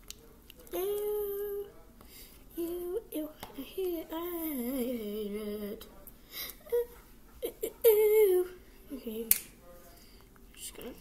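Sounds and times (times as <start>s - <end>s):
girl humming: 0.7s - 1.7s, 2.6s - 5.8s, 6.6s - 9.3s.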